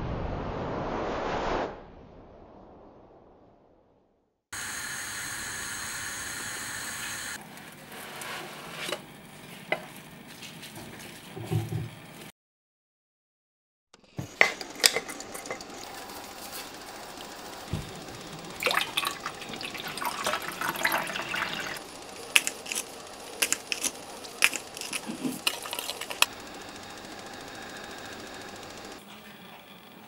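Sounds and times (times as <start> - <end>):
liquid pouring into saucepan: 18.5 - 21.8.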